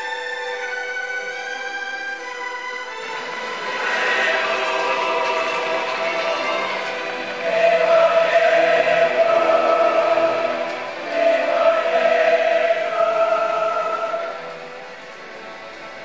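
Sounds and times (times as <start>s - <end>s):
choir singing: 2.9s - 15.5s.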